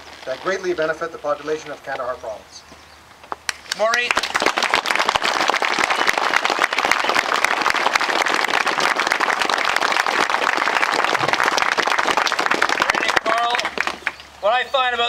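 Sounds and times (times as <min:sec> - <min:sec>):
crowd applauding: 0:03.5 - 0:14.3.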